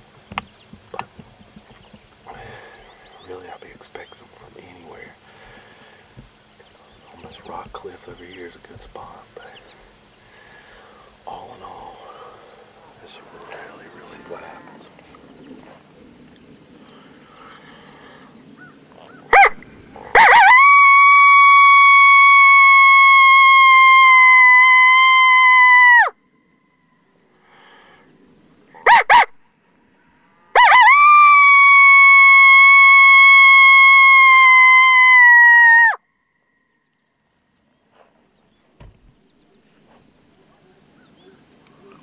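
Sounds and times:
coyote howl call: 18.6 - 26.8, 28.8 - 29.4, 30.5 - 36.6.

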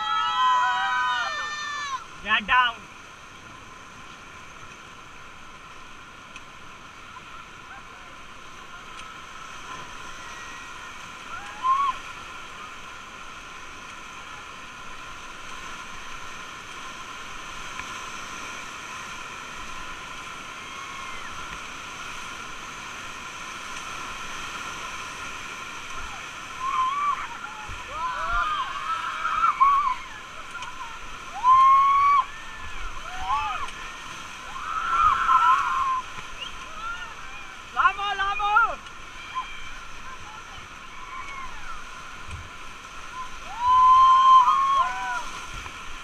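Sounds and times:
river rapids rushing: 0.0 - 46.0.

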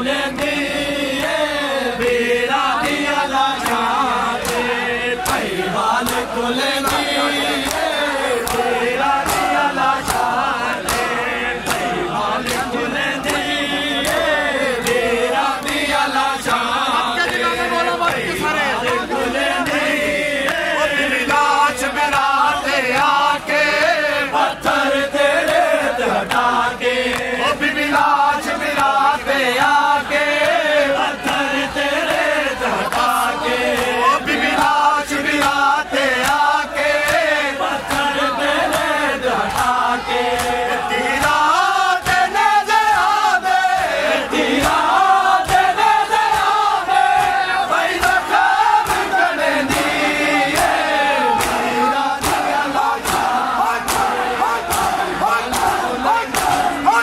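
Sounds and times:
men chanting in unison: 0.0 - 57.0
chest-beating slaps: 4.4 - 17.5, 43.8 - 57.0.

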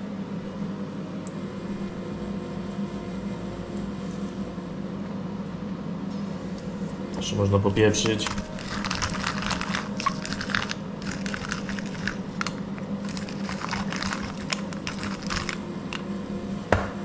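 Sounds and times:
steady low hum: 0.0 - 17.0
pepper mill grinding peppercorns: 7.8 - 16.1.

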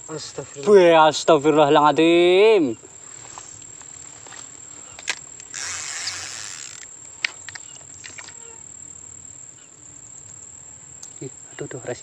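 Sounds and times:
insects droning: 0.0 - 12.0
sharp clicks: 4.9 - 8.4.

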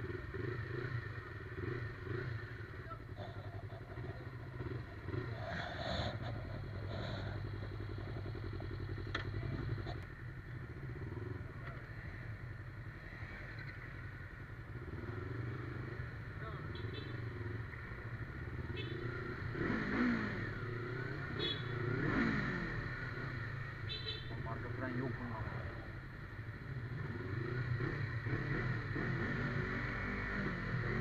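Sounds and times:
motorcycle engine idling: 0.0 - 19.3.

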